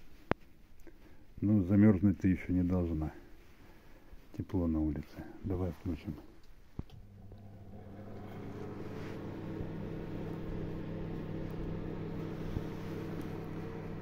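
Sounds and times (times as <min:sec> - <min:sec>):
electric motor hum: 0:06.9 - 0:14.0.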